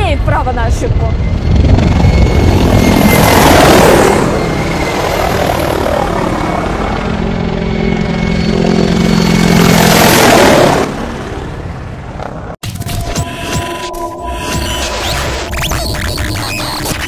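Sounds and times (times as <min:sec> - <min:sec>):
helicopters flying low: 0:00.0 - 0:12.6.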